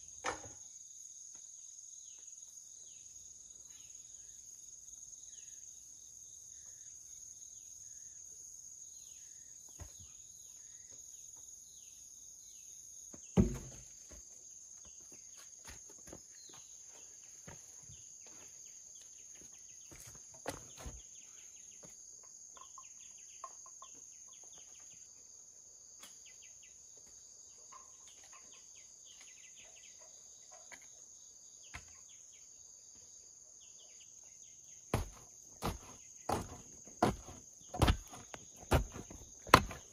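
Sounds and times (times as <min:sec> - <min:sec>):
wooden poles knocking: 0:13.4 - 0:13.9, 0:35.0 - 0:39.9.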